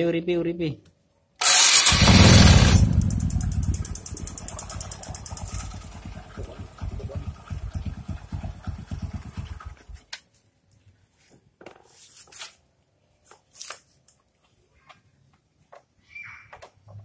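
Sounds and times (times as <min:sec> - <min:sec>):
motorcycle engine idling: 0:01.4 - 0:10.0
scattered clicks and knocks: 0:02.8 - 0:06.1.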